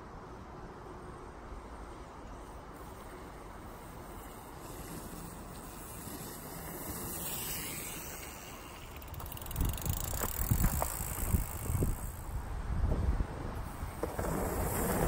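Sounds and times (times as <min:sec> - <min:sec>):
steady outdoor hiss: 0:00.0 - 0:15.0
wind on microphone: 0:09.5 - 0:14.0.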